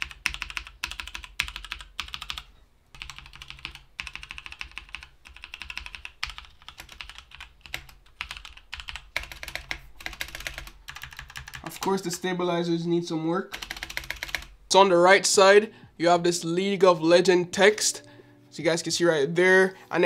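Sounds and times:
mechanical keyboard typing: 0:00.0 - 0:11.9, 0:13.5 - 0:14.5.

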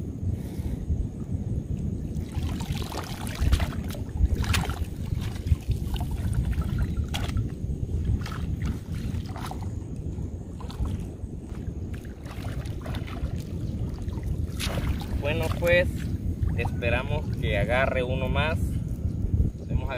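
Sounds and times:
wind rumble on microphone: 0:00.0 - 0:19.9
water splashing: 0:02.0 - 0:09.9, 0:10.5 - 0:17.7.

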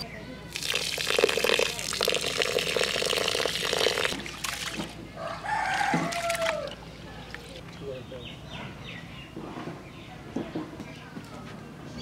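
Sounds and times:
water pouring onto rice in pot: 0:00.5 - 0:05.0
rooster crowing: 0:05.2 - 0:06.8.

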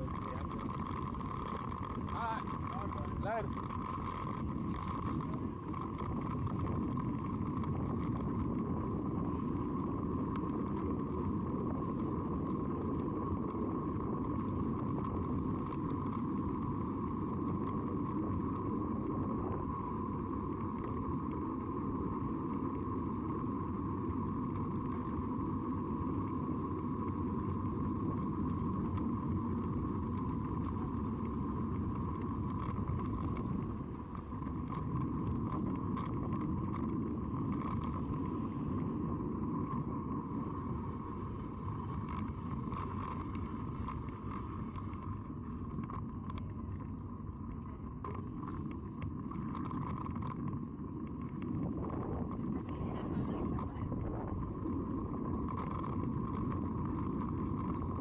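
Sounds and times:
faint clicks: 0:00.0 - 0:38.9, 0:39.6 - 0:58.0
bicycle tyres rolling on asphalt: 0:00.0 - 0:58.0
wind on microphone: 0:00.0 - 0:58.0.

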